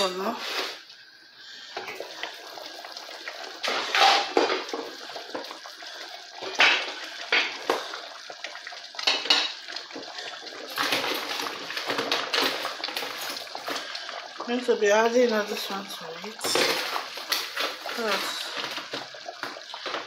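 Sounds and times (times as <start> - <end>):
pot of stock boiling: 0.0 - 20.0
metal cookware clinking: 9.0 - 13.6.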